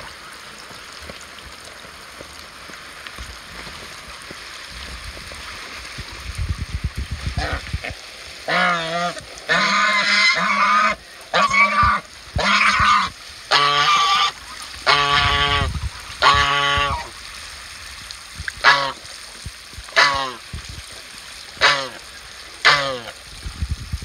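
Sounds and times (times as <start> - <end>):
hose trickling water: 0.0 - 24.0
geese honking: 8.5 - 17.1, 18.6 - 19.0, 20.0 - 20.4, 21.6 - 22.0, 22.6 - 23.1.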